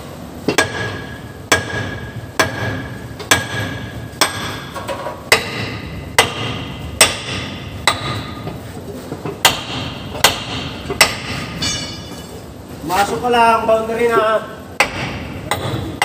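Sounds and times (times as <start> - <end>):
sledgehammer striking steel: 0.5 - 8.5, 9.4 - 12.4, 14.8 - 16.0.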